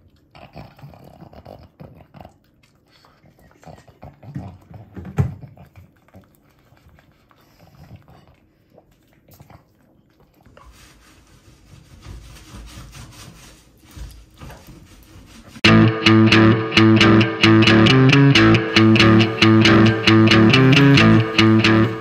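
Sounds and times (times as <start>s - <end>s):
dog licking and chewing: 0.0s - 10.7s.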